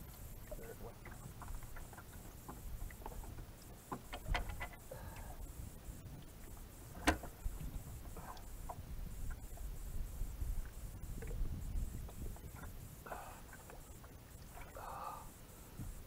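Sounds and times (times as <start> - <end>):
light clicks and knocks: 0.9 - 5.3, 6.9 - 7.4
wind on microphone: 6.9 - 13.2.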